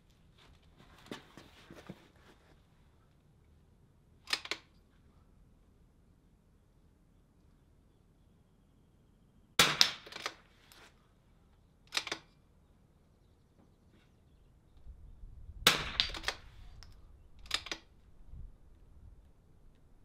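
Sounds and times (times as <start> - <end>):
rifle bolt clicks and knocks: 4.3 - 4.7, 9.8 - 10.4, 11.9 - 12.3, 15.9 - 17.9
rifle shots: 9.6 - 10.4, 15.7 - 16.4.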